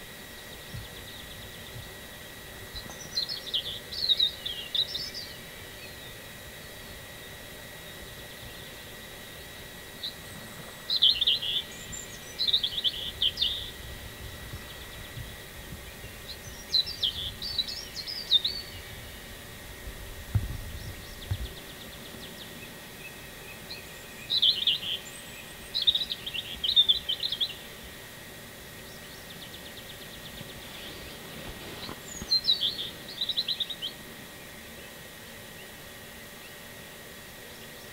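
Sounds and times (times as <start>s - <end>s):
songbird singing: 0.0s - 36.7s, 37.3s - 37.9s
bird trilling: 10.0s - 13.8s, 20.8s - 27.7s, 28.8s - 34.0s.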